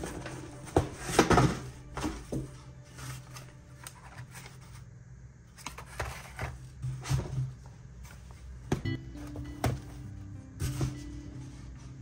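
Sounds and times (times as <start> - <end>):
products rustling and knocking: 0.0 - 4.7, 10.6 - 11.4.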